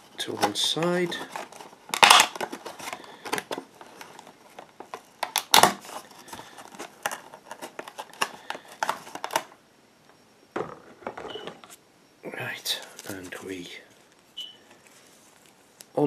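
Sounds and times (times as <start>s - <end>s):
plastic packaging crinkling: 0.2s - 9.6s.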